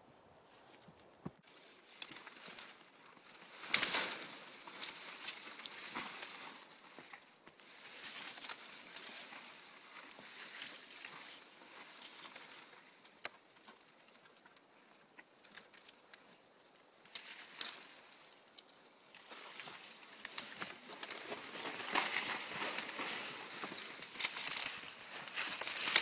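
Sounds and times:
palm fronds rustling and crackling: 0.5 - 26.0
frond snapping: 1.8 - 7.2, 19.3 - 26.0.

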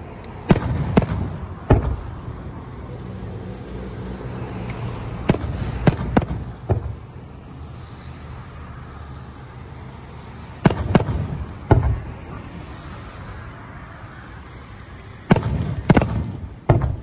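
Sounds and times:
steady low rumble: 0.0 - 17.0
firework shells bursting: 0.2 - 2.5, 4.6 - 7.1, 10.6 - 12.2, 15.2 - 17.0.

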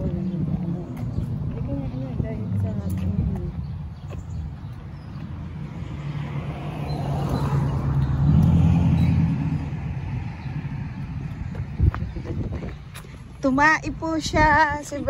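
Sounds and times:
car driving past: 5.1 - 12.5.

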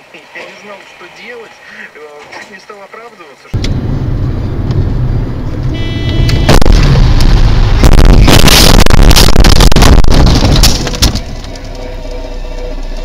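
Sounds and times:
car driving noise: 3.6 - 13.0
car crash impact: 7.8 - 11.5
windscreen glass shattering: 7.8 - 11.5.

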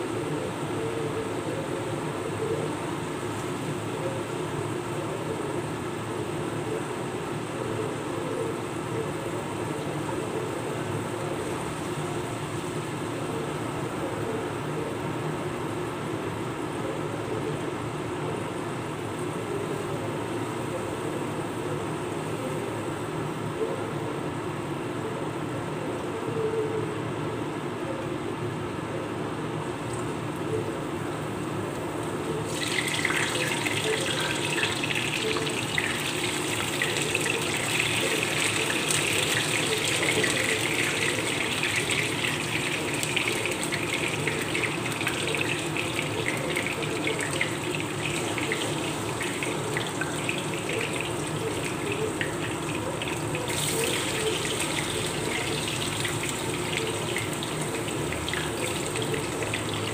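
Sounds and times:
steady low hum: 0.0 - 59.9
slices sizzling in hot oil: 32.5 - 59.9.

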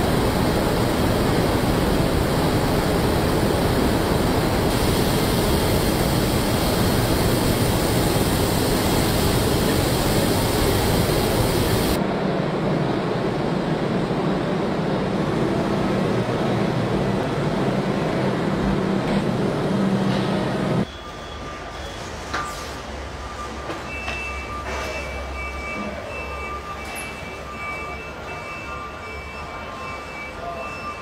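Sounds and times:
low factory hum: 0.0 - 31.0.

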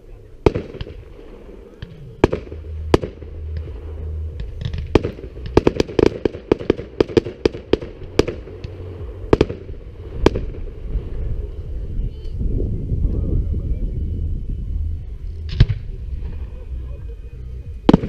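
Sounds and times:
fireworks bursting: 0.0 - 12.3, 17.7 - 18.0.

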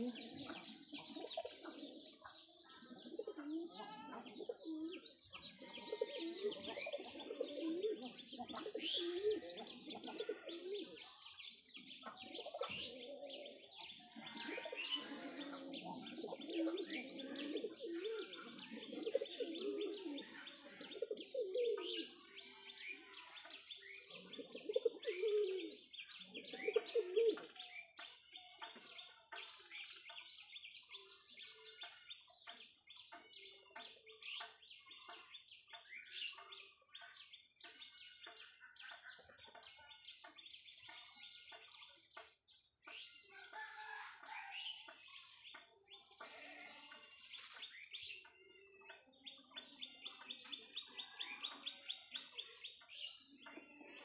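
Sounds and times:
pigeons cooing: 0.0 - 23.1, 24.0 - 28.0, 47.4 - 54.0
small birds chirping: 0.0 - 54.0.

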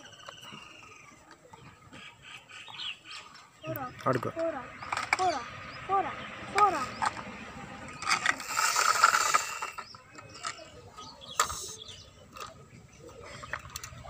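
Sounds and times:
plastic toy clicking and rattling: 4.1 - 5.4, 8.0 - 14.0.

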